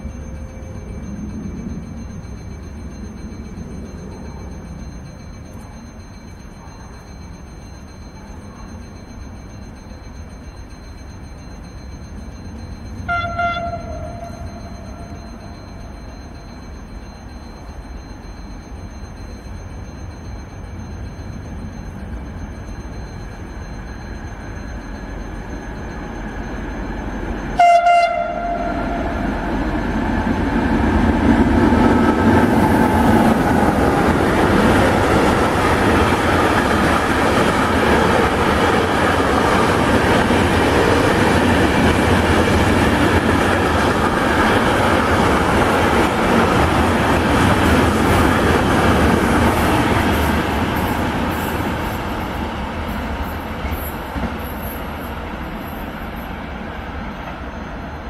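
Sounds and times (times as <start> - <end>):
freight train rumbling: 0.0 - 58.0
train wheels on rails: 0.0 - 58.0
train horn blast: 13.1 - 14.4, 27.6 - 29.1.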